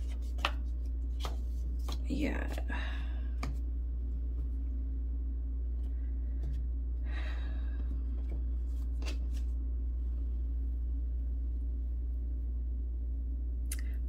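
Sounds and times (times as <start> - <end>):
paper cards flicking: 0.0 - 2.0
steady low hum: 0.0 - 14.0.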